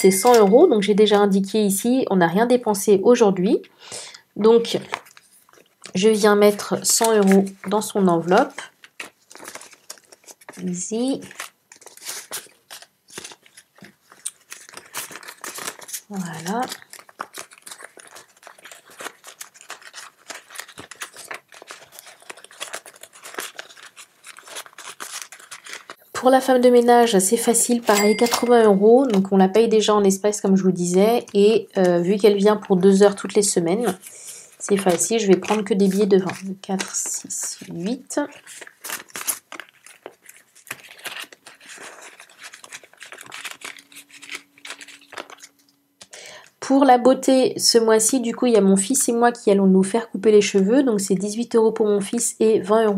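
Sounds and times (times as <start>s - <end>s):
banknotes and envelope rustling: 0.0s - 1.2s, 4.6s - 29.9s, 30.6s - 45.7s.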